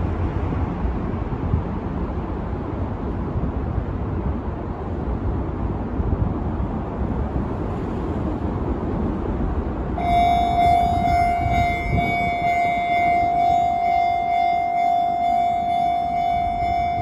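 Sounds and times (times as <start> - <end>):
level crossing alarm ringing: 10.0 - 17.0
steady low rumble: 10.0 - 17.0.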